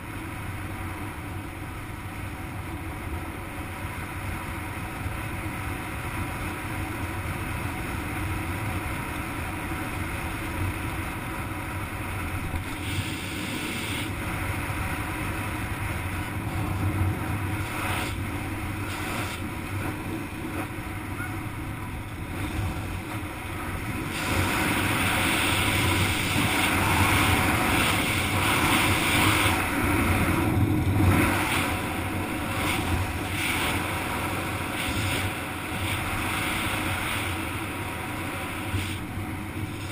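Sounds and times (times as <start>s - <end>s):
wind buffeting microphone: 12.3s - 39.9s.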